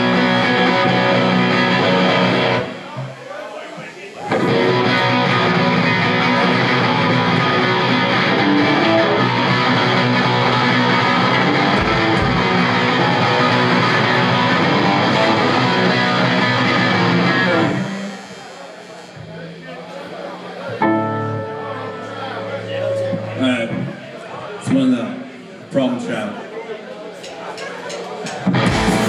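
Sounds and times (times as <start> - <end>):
punk band playing: 0.0 - 3.2, 4.3 - 18.5, 28.3 - 29.0.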